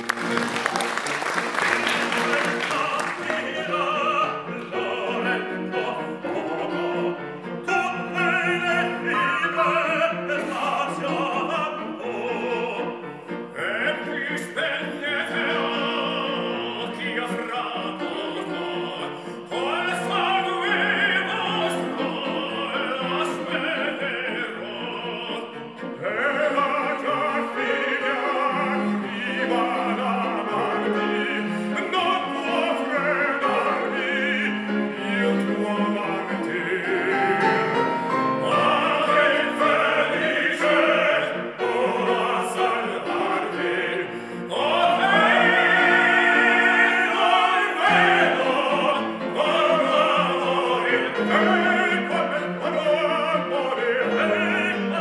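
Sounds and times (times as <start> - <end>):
instrumental accompaniment: 0.0 - 55.0
tenors singing operatic piece: 0.0 - 55.0.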